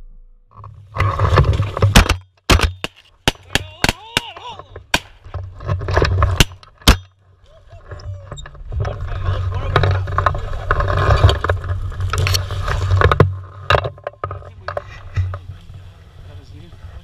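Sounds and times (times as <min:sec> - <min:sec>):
sharp cracks and knocks: 0:00.5 - 0:07.2
low wind rumble: 0:04.4 - 0:17.0.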